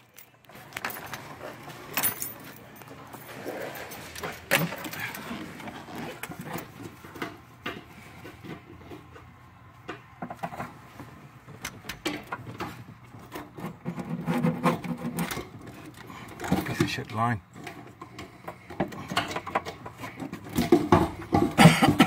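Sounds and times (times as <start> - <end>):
fuel pump parts clicking and rattling: 0.0 - 22.0.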